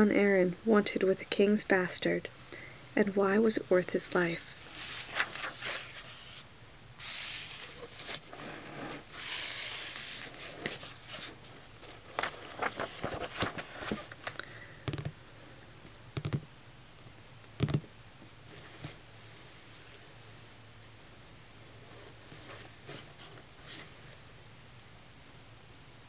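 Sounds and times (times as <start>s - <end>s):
book pages rustling: 4.4s - 6.5s, 7.5s - 15.2s, 21.9s - 24.2s
fingertips tapping on book cover: 14.8s - 15.2s, 16.2s - 16.5s, 17.6s - 17.9s.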